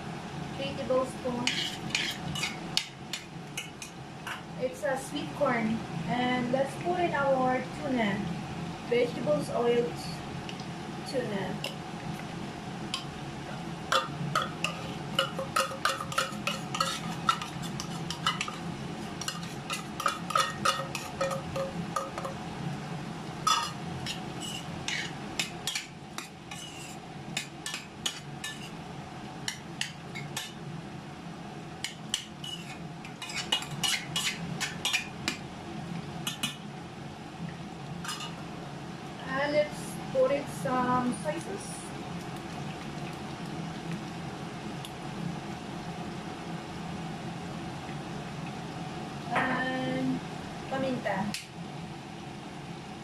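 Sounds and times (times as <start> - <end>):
steady low hum: 0.0 - 53.0
metal spoon scraping in pot: 1.4 - 3.9, 13.9 - 22.4, 23.5 - 28.8, 29.5 - 30.6, 31.9 - 35.1.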